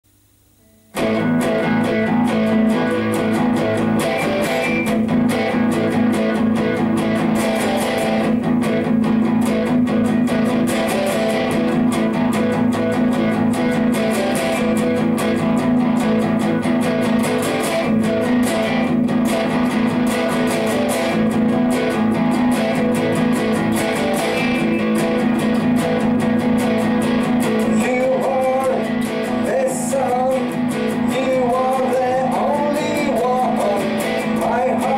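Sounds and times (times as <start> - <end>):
electric guitar playing rock riff: 0.4 - 34.9.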